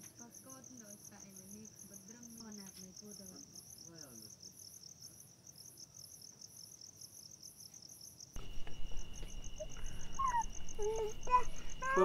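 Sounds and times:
crickets chirping: 0:00.0 - 0:12.0
steady high whine: 0:08.4 - 0:12.0.

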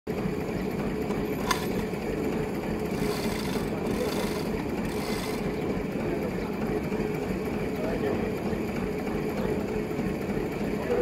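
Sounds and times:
saw rasping through wood: 0:02.9 - 0:05.6.

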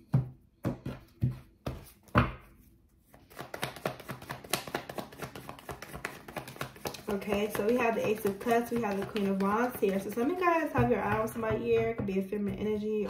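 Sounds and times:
cards shuffling: 0:03.0 - 0:10.4
cards tapped on desk: 0:03.3 - 0:10.2.

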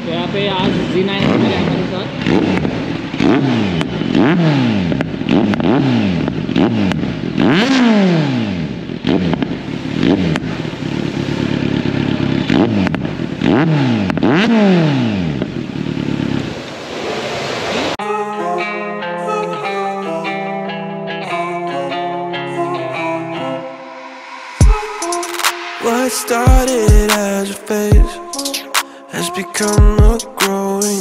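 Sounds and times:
motorcycle engine revving: 0:00.0 - 0:18.0, 0:23.3 - 0:27.9
exhaust pops: 0:00.4 - 0:07.8, 0:08.7 - 0:16.4.

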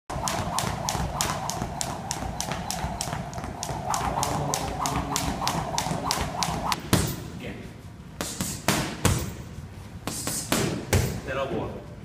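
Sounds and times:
skipping rope slapping wooden floor: 0:00.1 - 0:07.1.

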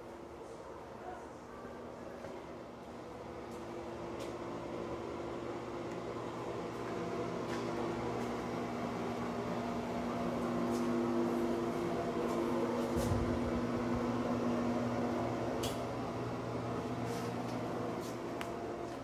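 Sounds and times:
machine hum: 0:02.4 - 0:19.0.

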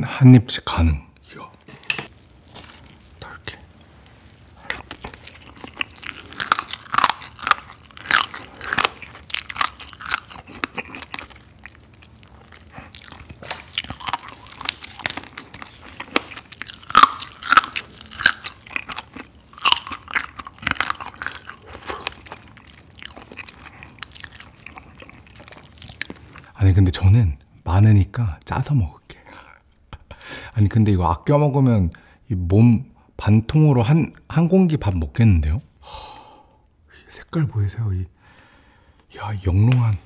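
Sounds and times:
crab legs crunched and chewed: 0:04.2 - 0:26.5.

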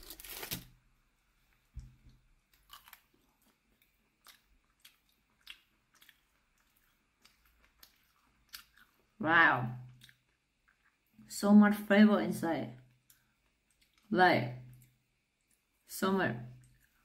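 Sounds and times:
person chewing crunchy food: 0:02.1 - 0:09.2.

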